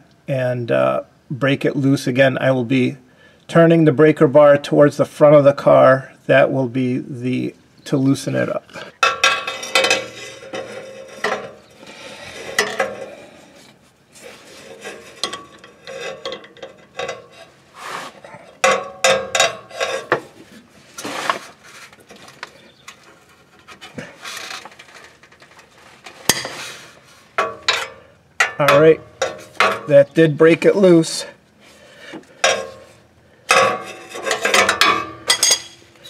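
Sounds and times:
metal bar clinking and scraping: 8.8s - 20.4s, 22.1s - 26.8s, 27.4s - 30.1s, 32.3s - 36.0s.

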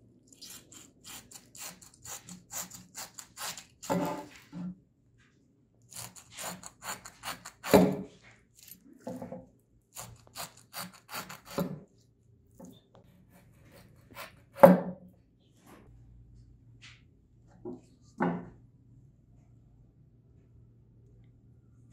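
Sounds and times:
saw cutting through fruit: 0.3s - 4.4s, 5.9s - 8.8s, 9.9s - 11.8s, 13.1s - 14.6s.

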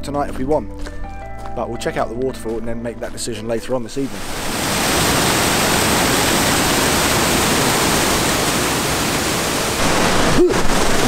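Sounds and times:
waterfall rushing over rocks: 4.1s - 11.0s.

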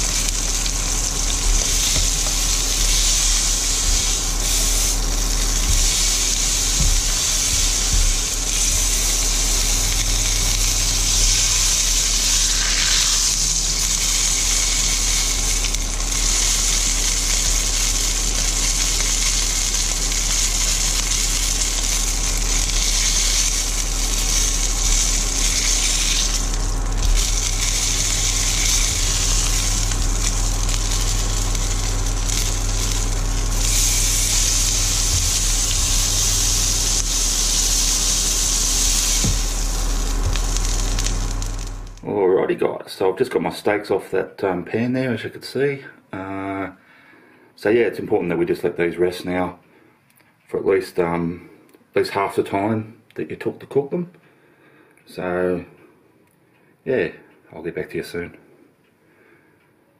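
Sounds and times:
steak sizzling in a frying pan: 0.0s - 42.0s.

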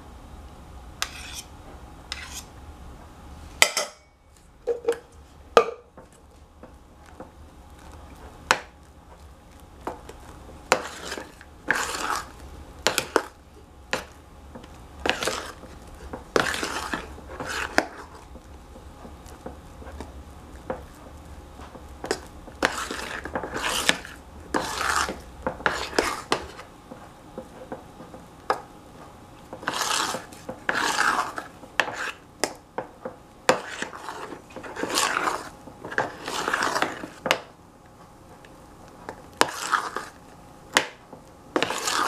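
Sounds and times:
metal spoon scraping saucepan: 1.0s - 1.5s, 2.1s - 2.5s.

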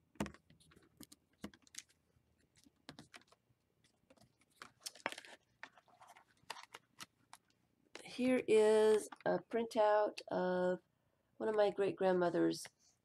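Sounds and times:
paper clicks: 0.1s - 7.6s
paper pages rustling: 0.1s - 8.1s.

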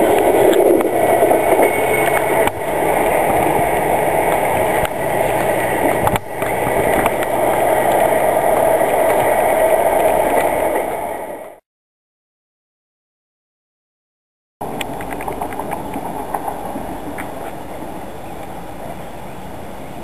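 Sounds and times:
train wheels rumbling on track: 0.0s - 11.6s, 14.6s - 20.0s.

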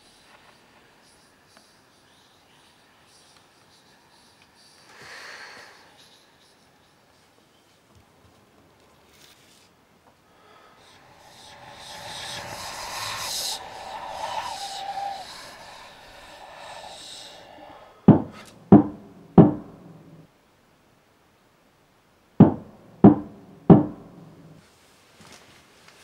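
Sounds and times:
hiss with held tone: 0.0s - 7.9s, 9.2s - 20.3s
loud knocks on wooden door: 18.1s - 19.6s, 22.4s - 23.9s.

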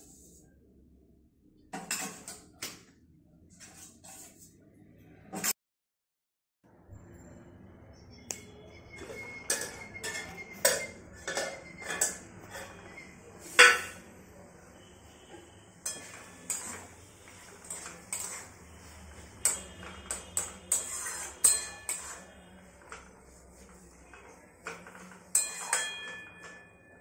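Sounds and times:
metal spatula scraping a pan: 3.6s - 4.5s, 8.9s - 14.1s, 14.7s - 27.0s.

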